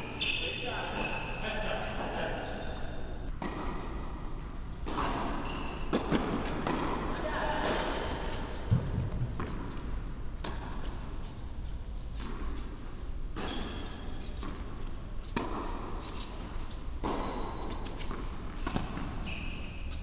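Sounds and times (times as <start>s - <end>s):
racket hitting tennis ball: 3.3s - 11.3s, 12.2s - 20.0s
tennis ball bouncing: 3.3s - 11.3s, 13.3s - 20.0s.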